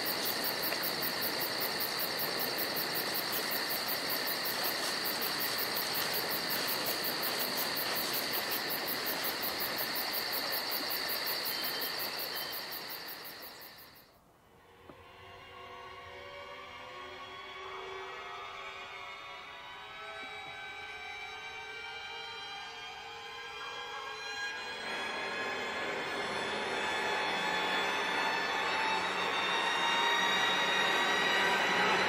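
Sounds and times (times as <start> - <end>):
insects trilling: 0.0 - 14.2, 20.6 - 32.0.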